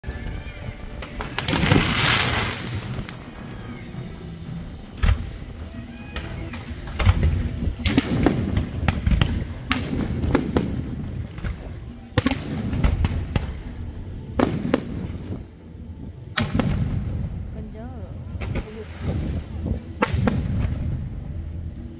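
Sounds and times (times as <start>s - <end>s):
low rumble: 0.0s - 21.9s
fireworks bangs: 1.0s - 13.8s, 16.4s - 17.4s, 18.4s - 21.4s.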